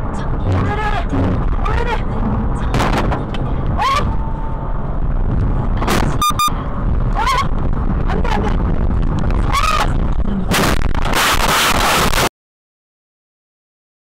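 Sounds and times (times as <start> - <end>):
engine and road noise: 0.0 - 12.3
double electronic beep: 6.0 - 6.6.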